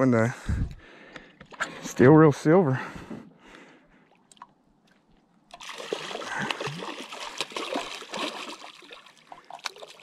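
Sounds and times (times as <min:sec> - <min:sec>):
fish thrashing and splashing: 0:05.5 - 0:10.0.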